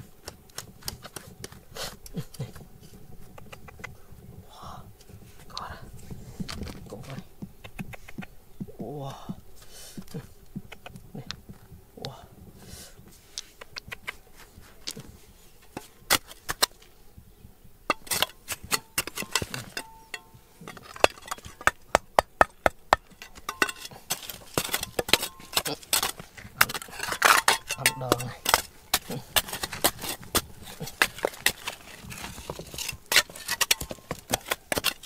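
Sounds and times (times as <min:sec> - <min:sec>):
tools and stones knocking on rock: 0:00.0 - 0:02.6, 0:15.7 - 0:16.9, 0:17.9 - 0:35.0.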